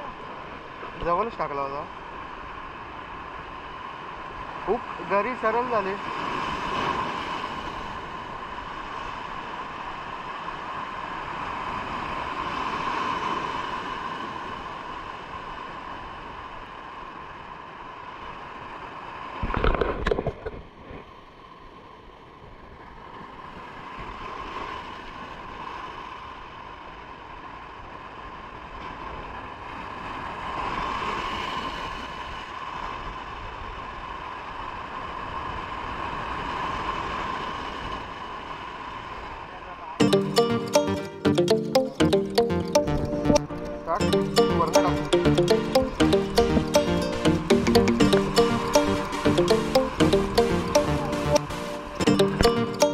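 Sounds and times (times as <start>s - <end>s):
wind: 0.0s - 40.0s
surf: 40.0s - 52.9s.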